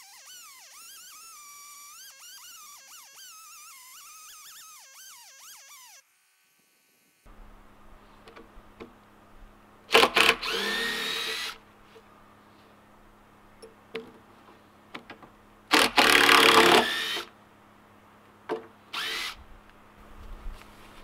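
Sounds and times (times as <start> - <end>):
cordless drill into wood: 0.0 - 6.0, 9.9 - 11.6, 15.7 - 17.3, 18.9 - 19.4.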